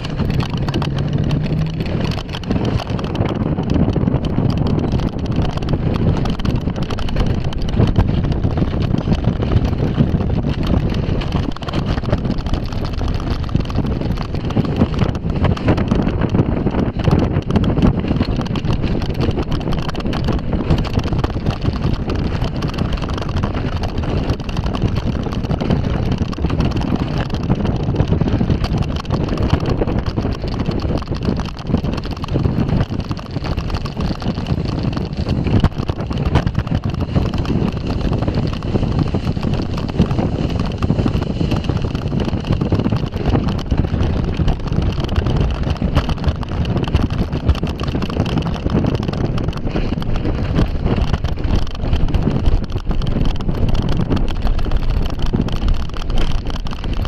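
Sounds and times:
bobsled rumbling on metal rail: 0.0 - 57.0
wind buffeting microphone: 0.0 - 57.0.

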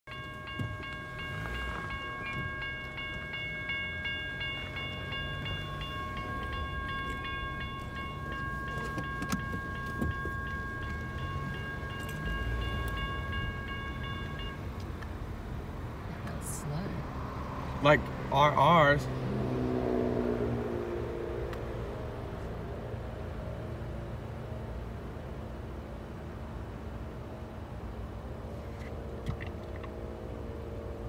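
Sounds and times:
crossing warning bell ringing: 0.1 - 17.1.

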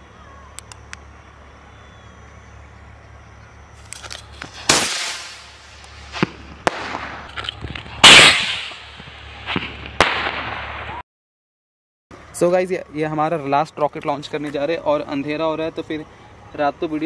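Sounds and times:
firework crackles and pops: 3.8 - 11.0
firework hissing burst: 3.8 - 11.0.

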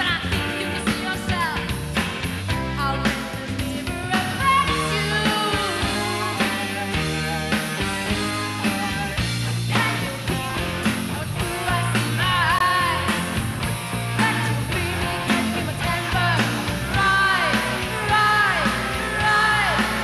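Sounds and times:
woman singing: 0.0 - 1.8, 2.7 - 7.0, 8.6 - 13.4, 14.1 - 20.0
rock band playing: 0.0 - 20.0.

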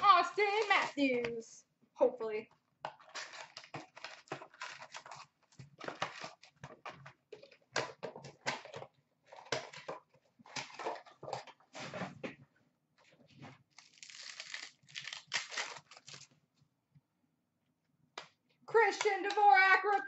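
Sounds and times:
card pack wrappers crinkling and tearing: 0.0 - 1.2, 2.9 - 6.6, 13.7 - 16.4.

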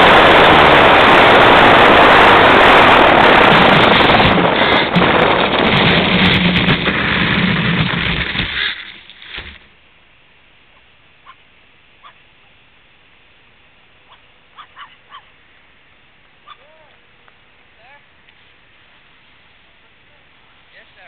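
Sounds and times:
small aircraft motor and wind rush: 0.0 - 8.1.

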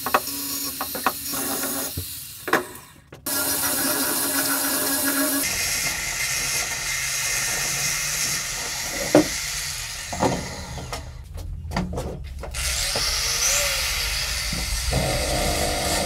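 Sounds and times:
angle grinder sanding metal: 3.3 - 10.6, 12.5 - 16.0.

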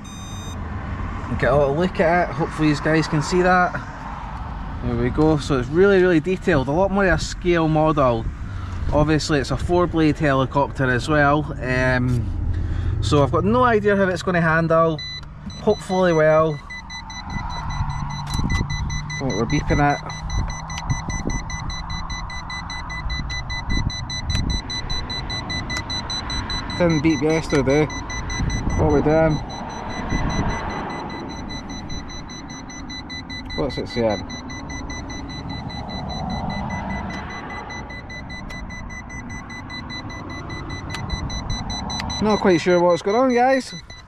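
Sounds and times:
high-pitched electronic beeping: 0.0 - 0.6, 14.9 - 44.0
wind rumbling on microphone: 17.2 - 25.8, 28.0 - 30.8.

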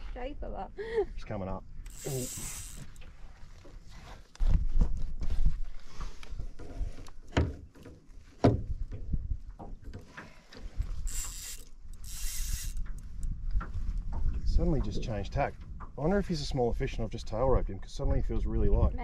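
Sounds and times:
fishing reel gears ticking: 1.8 - 3.0, 11.0 - 13.0.

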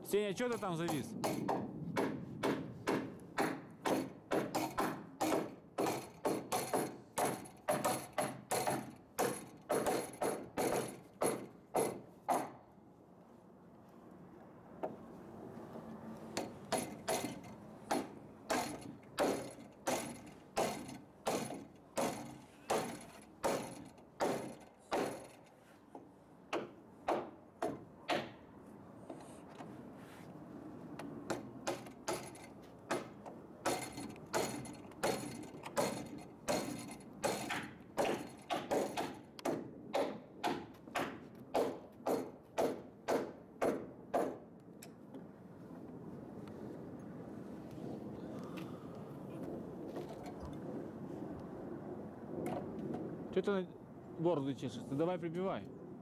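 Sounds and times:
hammer driving nails into wood: 0.5 - 12.6, 16.4 - 25.5, 26.5 - 28.4, 31.3 - 44.4.

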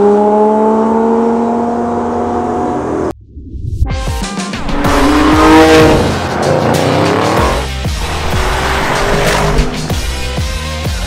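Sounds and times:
music with heavy beat: 4.0 - 11.0
sports car engine revving: 4.6 - 10.4.

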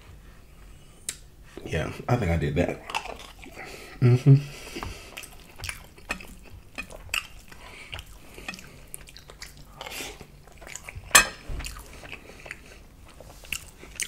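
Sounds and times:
close chewing: 2.8 - 14.0
spoon clacking against bowl: 5.6 - 7.0, 11.2 - 11.4.

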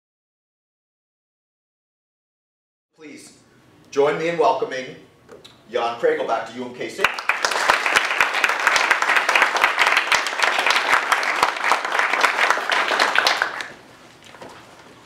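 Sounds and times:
audience applauding: 7.0 - 13.8.

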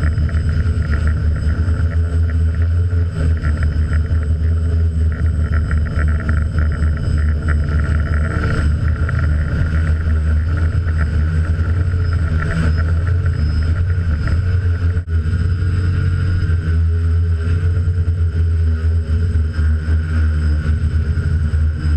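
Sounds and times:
drone propellers whirring: 0.0 - 21.9
wind buffeting microphone: 0.0 - 21.9.

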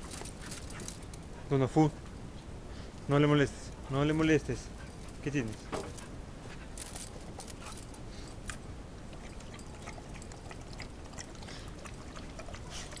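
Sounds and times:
dog lapping water: 9.1 - 13.0.

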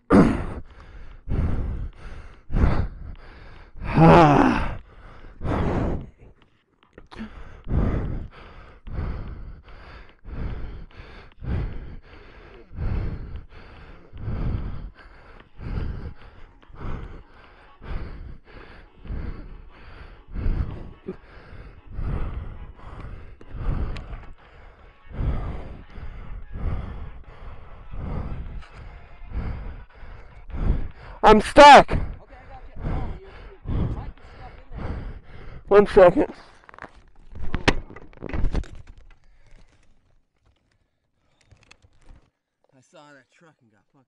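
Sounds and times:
heavy rhythmic breathing: 0.0 - 42.3.

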